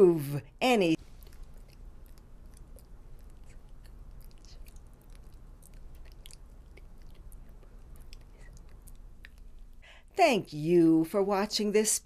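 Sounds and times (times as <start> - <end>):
low steady hum: 0.0 - 12.0
mouth clicks and lip smacks: 1.1 - 9.8.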